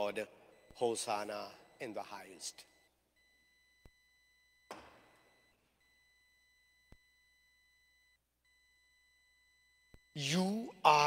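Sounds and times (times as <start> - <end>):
ringing thump: 4.6 - 5.4.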